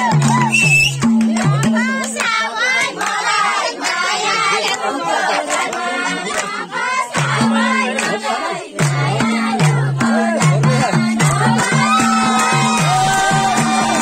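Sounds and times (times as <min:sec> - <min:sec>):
percussive beat: 0:00.0 - 0:03.0, 0:07.0 - 0:14.0
people clapping: 0:00.0 - 0:14.0
folk singing: 0:01.3 - 0:14.0.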